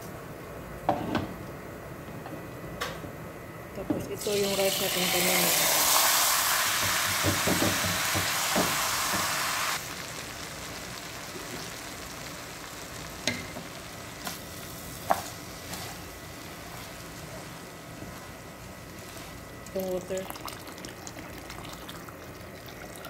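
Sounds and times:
rice sizzling in hot pot: 4.2 - 22.2.

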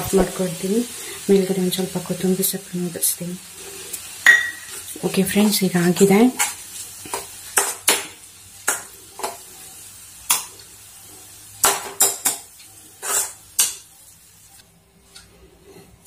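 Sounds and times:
metal spoon scraping metal pan: 11.9 - 13.9.

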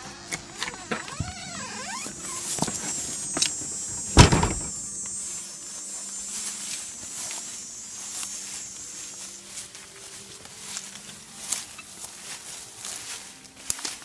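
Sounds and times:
door hinges squeaking: 0.5 - 4.9
door banging shut: 3.9 - 4.9.

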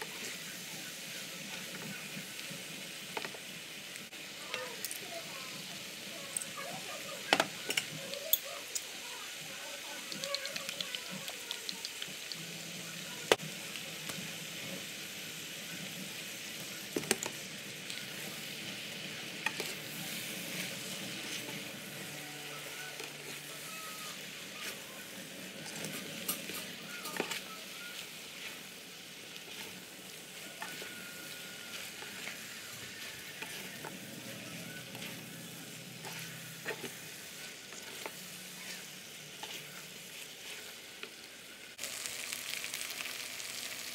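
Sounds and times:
noodles sizzling in a skillet: 0.0 - 43.9
spatulas tapping and scraping pan: 25.6 - 27.5, 36.0 - 37.0.

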